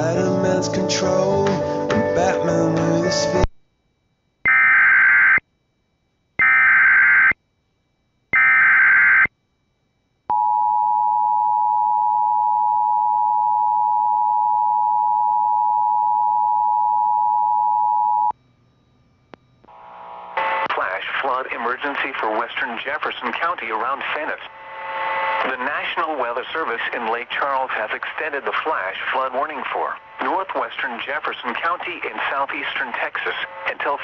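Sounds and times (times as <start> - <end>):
data header bursts: 19.7 - 34.0.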